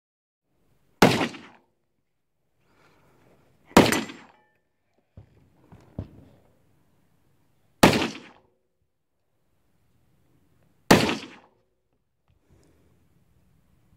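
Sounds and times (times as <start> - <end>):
rifle shots: 1.0 - 1.6, 3.8 - 4.4, 7.8 - 8.4, 10.9 - 11.5.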